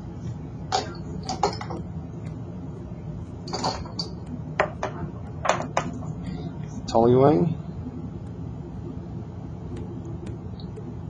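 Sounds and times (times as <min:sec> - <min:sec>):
extraction fan hum: 0:00.0 - 0:11.0.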